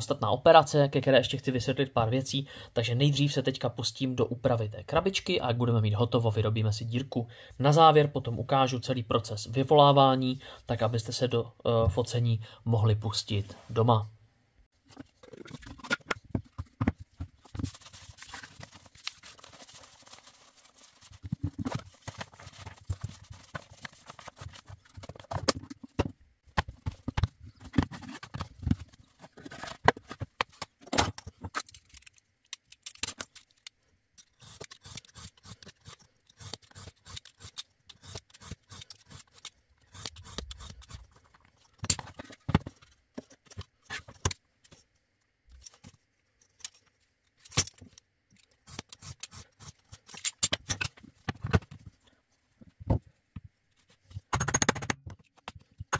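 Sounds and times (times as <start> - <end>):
objects knocking and scraping on mat: 14.8 - 18.7, 21.0 - 31.6, 41.8 - 44.8, 50.6 - 52.0.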